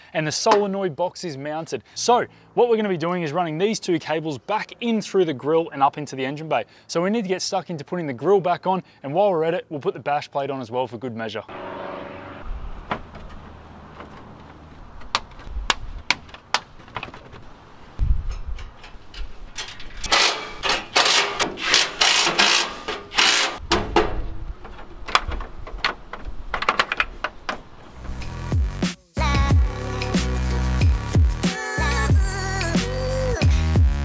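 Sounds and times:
scraping and rustling: 0:12.9 - 0:28.4
plastic and metal clicks and knocks: 0:23.6 - 0:27.6.

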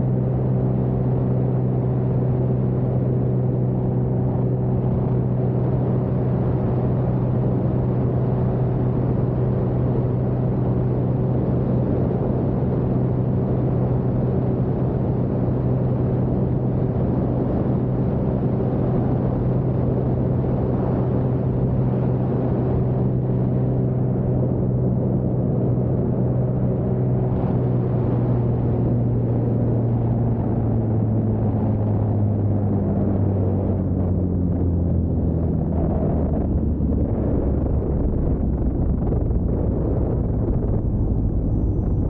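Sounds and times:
propeller engine droning: 0:00.0 - 0:42.0.

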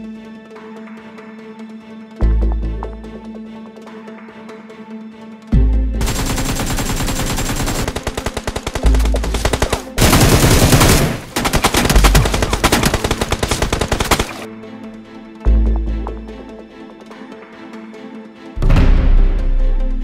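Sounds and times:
rapid automatic gunfire: 0:06.0 - 0:14.5.

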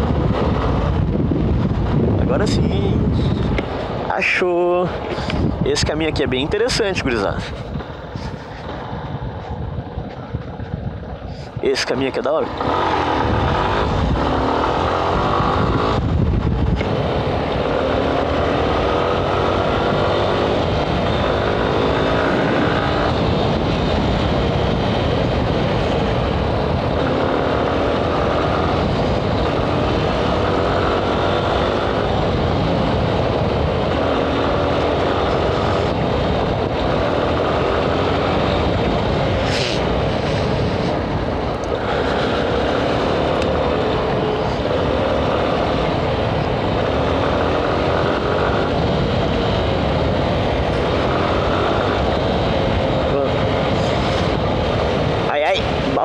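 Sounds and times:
motorcycle engine revving: 0:12.2 - 0:56.0.

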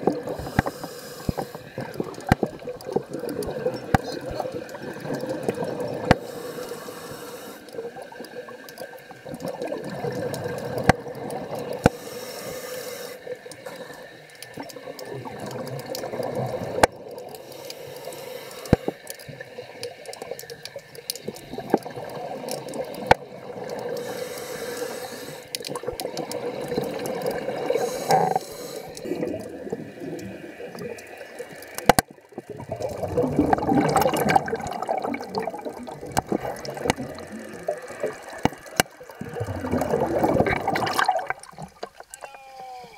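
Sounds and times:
diver breathing through regulator: 0:00.2 - 0:02.0, 0:06.1 - 0:07.8, 0:11.8 - 0:14.2, 0:17.4 - 0:19.1, 0:23.9 - 0:25.6, 0:27.6 - 0:29.3
bubbles gurgling underwater: 0:01.6 - 0:06.3, 0:07.8 - 0:11.9, 0:14.6 - 0:17.4, 0:21.2 - 0:24.1, 0:25.6 - 0:42.1.

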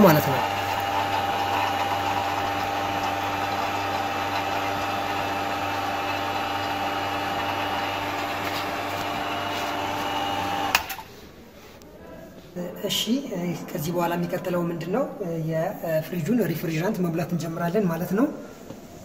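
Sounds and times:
vacuum pump humming: 0:00.0 - 0:11.1.

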